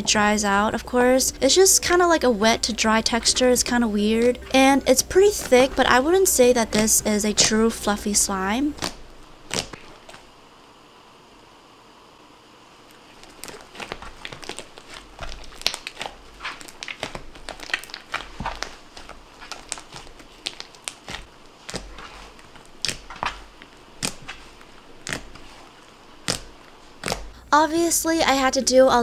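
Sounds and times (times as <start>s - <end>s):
slime crackling pops: 13.2s - 25.5s
slime being squeezed by hand: 13.2s - 27.3s.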